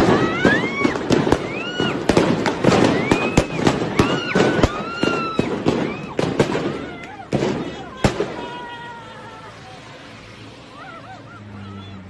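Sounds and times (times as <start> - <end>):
gunshots: 0.0 - 8.6
people shouting: 0.0 - 12.0.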